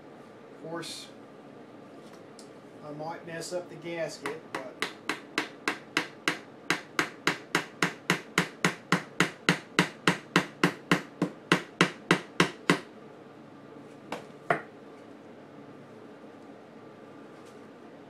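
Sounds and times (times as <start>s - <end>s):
hammer tapping on wood: 4.2s - 12.9s, 14.1s - 14.7s.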